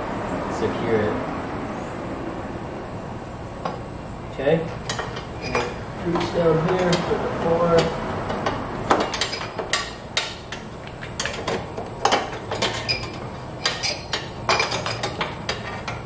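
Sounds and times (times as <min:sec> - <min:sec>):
metal bar clinking and knocking: 0:04.8 - 0:07.1, 0:07.7 - 0:16.0.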